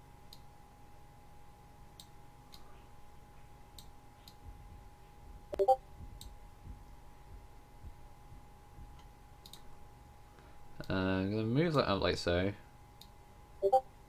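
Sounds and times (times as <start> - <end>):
faint steady hum: 0.0 - 14.0
computer mouse clicking: 9.4 - 9.7.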